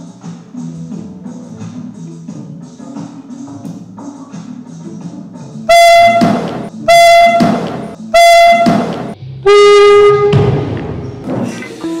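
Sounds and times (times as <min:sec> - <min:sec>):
air horn blasts: 0:05.7 - 0:10.5.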